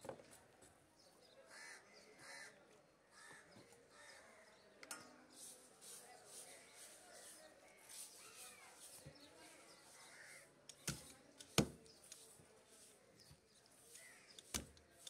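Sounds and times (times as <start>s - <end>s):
crows cawing: 1.5s - 2.6s
knife chopping fish on wood: 10.8s - 11.8s.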